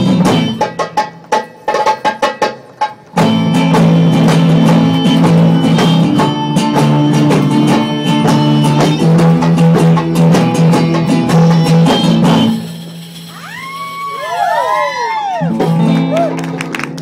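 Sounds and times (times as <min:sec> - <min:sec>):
hand drum beats: 0:00.0 - 0:12.7
strummed acoustic guitar: 0:00.0 - 0:13.4.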